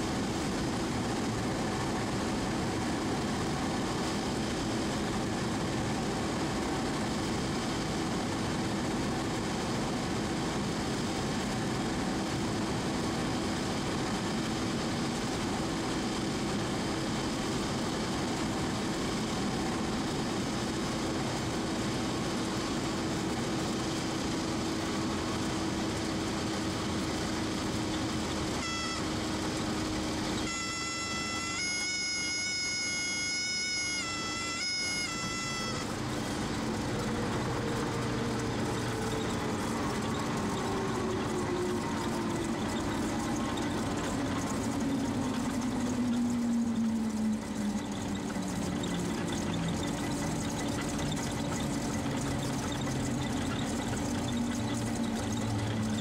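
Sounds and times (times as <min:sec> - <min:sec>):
aircraft engine and propeller: 0:00.0 - 0:56.0
stall warning horn: 0:28.4 - 0:45.6.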